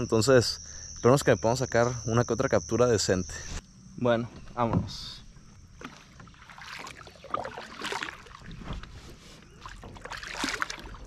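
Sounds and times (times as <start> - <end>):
kayak paddle splashing water: 5.4 - 11.0.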